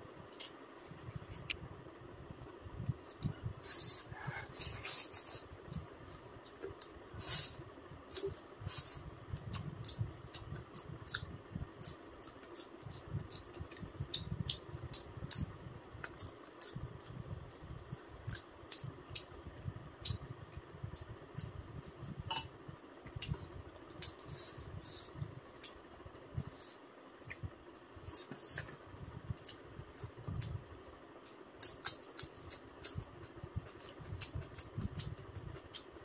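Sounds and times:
person chewing wetly: 0:29.4 - 0:36.0.

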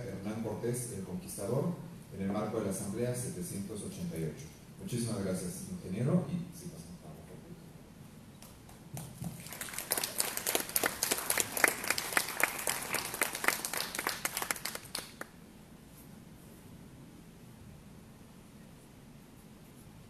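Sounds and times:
audience applauding: 0:08.9 - 0:15.3.

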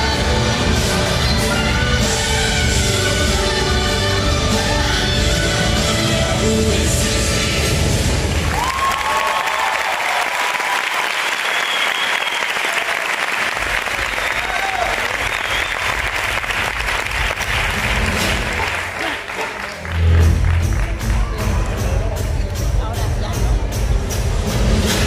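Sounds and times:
audience applauding: 0:08.2 - 0:22.0
cheers and whoops: 0:08.4 - 0:13.2, 0:14.0 - 0:16.0
low music: 0:17.2 - 0:25.0.

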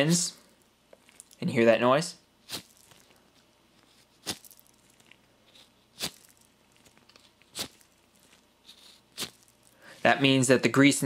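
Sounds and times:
faint background noise: 0:00.0 - 0:11.0.

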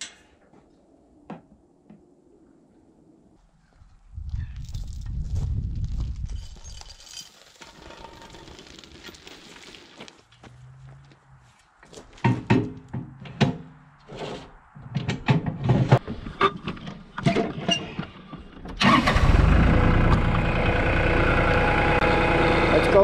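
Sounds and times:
knocks and rattles: 0:12.1 - 0:13.8, 0:14.8 - 0:18.8
sawmill engine running: 0:18.8 - 0:23.0.

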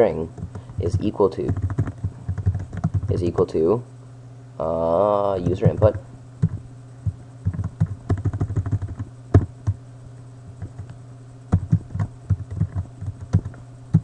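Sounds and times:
computer keyboard typing: 0:00.4 - 0:03.5, 0:05.4 - 0:06.6, 0:07.4 - 0:09.8, 0:10.6 - 0:10.9, 0:11.5 - 0:14.0.

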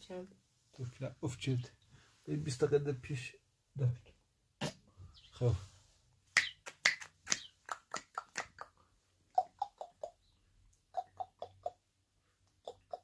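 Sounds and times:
person snapping fingers: 0:06.4 - 0:08.7.

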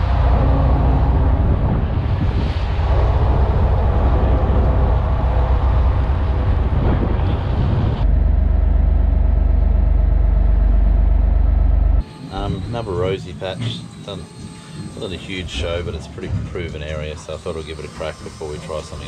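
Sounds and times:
water rushing along hull: 0:00.0 - 0:08.0
boat diesel engine hum: 0:00.0 - 0:16.2.

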